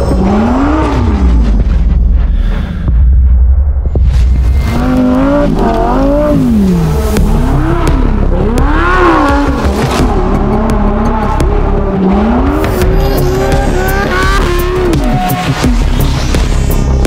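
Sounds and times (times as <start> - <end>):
car engine revving hard: 4.8 - 16.3.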